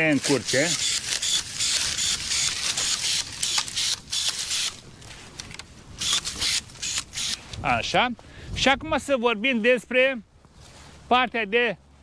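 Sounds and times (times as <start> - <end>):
pruning shears clicking: 0.0 - 7.6
twigs rustling and crackling: 0.0 - 7.6.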